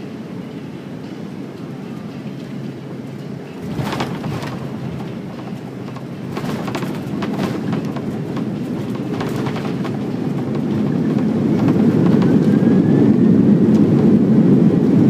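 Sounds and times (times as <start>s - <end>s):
jet engines rumbling: 0.0s - 15.0s
wheels rolling on runway: 3.5s - 15.0s
cabin fittings rattling: 3.6s - 12.6s.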